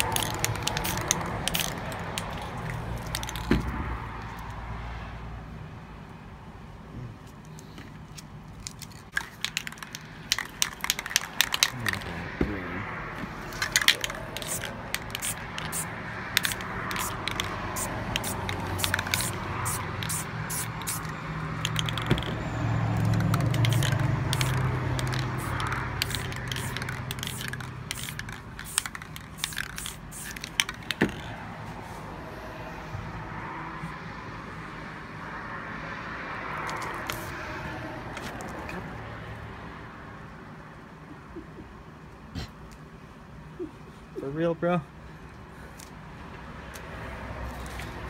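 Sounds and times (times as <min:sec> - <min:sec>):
sharp clicks and crackles: 0:00.0 - 0:03.5, 0:07.4 - 0:12.1, 0:13.5 - 0:22.4, 0:23.0 - 0:31.2
spray paint cans hissing: 0:00.0 - 0:03.7, 0:08.6 - 0:12.1, 0:13.4 - 0:31.4, 0:36.6 - 0:37.4.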